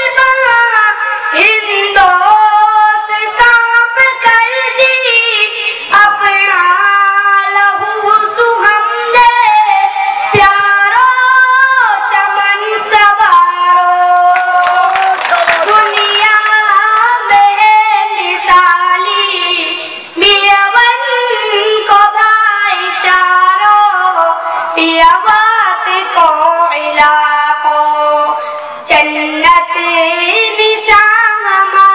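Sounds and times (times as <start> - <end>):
boy singing into a microphone: 0.0 - 31.9
audience clapping: 14.4 - 17.2.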